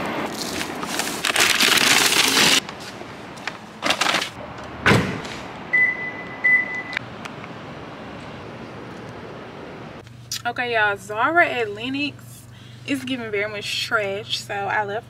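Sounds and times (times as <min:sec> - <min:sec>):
heavy thump: 0:04.8 - 0:05.4
short high beeps: 0:05.7 - 0:07.0.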